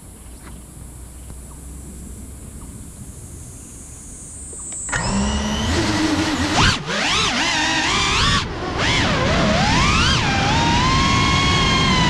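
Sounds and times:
faint high-pitched electronic whine: 0.0s - 7.3s
drone motors whining hum: 0.0s - 12.0s
low hum: 0.0s - 12.0s.

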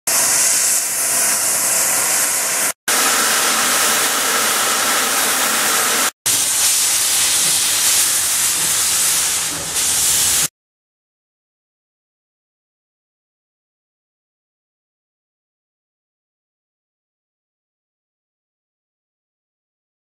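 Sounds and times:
steam locomotive hissing: 0.1s - 10.5s.

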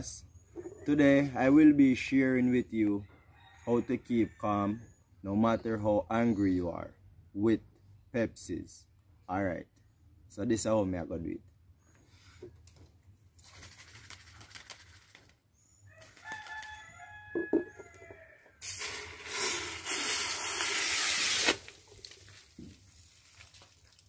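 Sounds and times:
rooster crowing: 15.9s - 18.6s
soda hissing and spraying: 18.6s - 21.8s.

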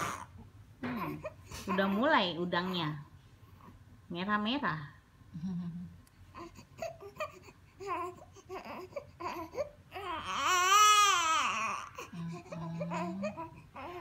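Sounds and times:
baby crying: 0.0s - 2.0s, 6.4s - 14.0s.

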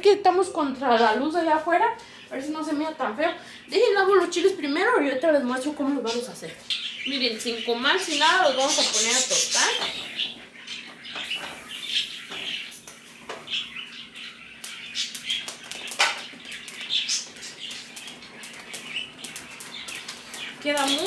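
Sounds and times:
kitchen clatter and knocks: 15.9s - 16.2s.

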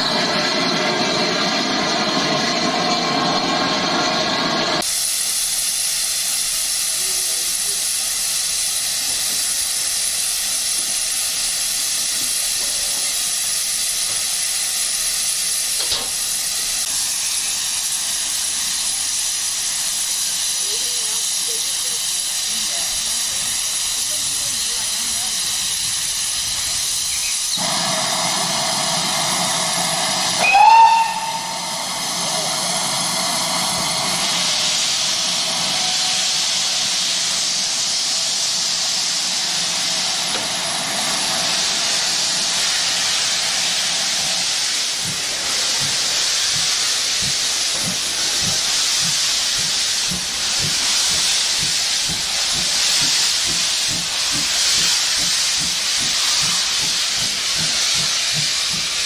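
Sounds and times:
steam locomotive hissing: 0.0s - 59.0s
locomotive whistle: 30.2s - 32.0s.

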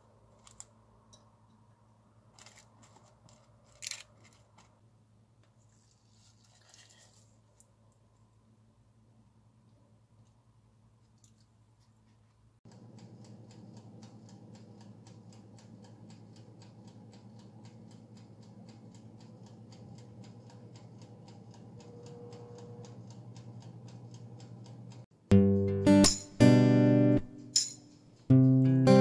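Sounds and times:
low hum of oven: 12.7s - 25.1s
oven timer ticking: 12.7s - 29.0s.

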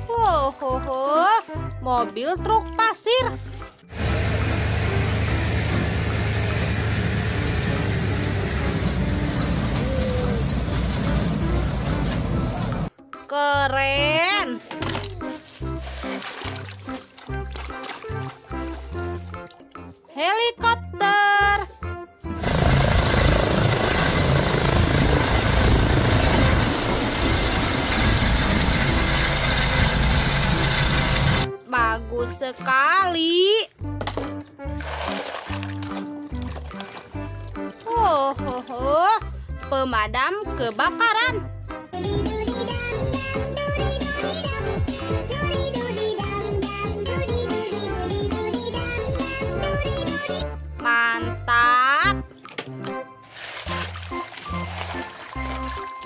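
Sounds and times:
diesel truck engine straining: 3.9s - 12.9s, 22.4s - 31.5s
helicopter flying close by: 4.0s - 12.9s, 22.4s - 31.5s.

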